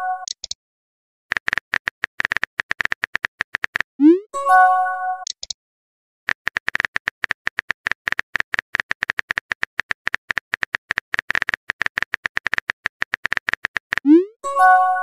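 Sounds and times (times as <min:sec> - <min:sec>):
keyboard typing clicks: 0:00.2 - 0:00.6, 0:01.3 - 0:03.9, 0:05.2 - 0:05.6, 0:06.3 - 0:14.2.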